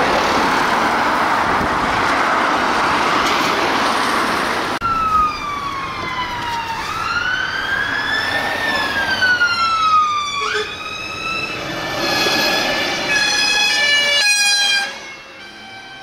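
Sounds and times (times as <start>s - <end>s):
fire engine siren wailing: 4.8s - 16.0s.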